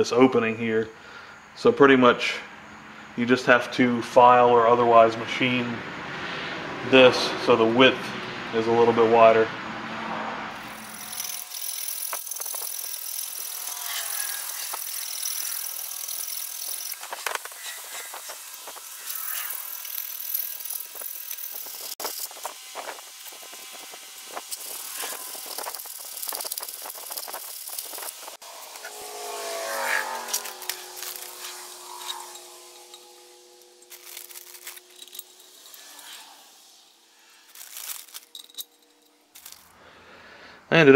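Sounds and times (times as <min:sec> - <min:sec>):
hand file rasping on metal: 0:10.8 - 0:36.5.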